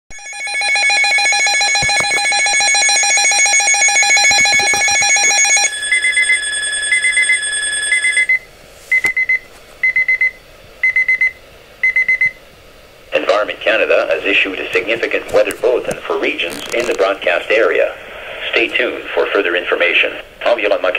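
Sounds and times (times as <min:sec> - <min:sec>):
fast-pulsing alarm tone: 0:00.1 - 0:08.3.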